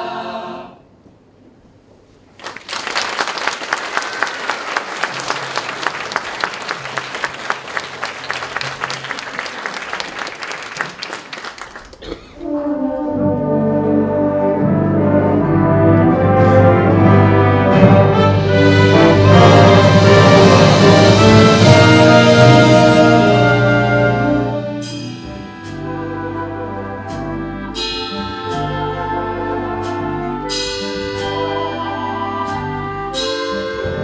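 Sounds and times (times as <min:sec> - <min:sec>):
audience applauding: 0:02.4 - 0:12.2
wind band playing: 0:12.4 - 0:34.0.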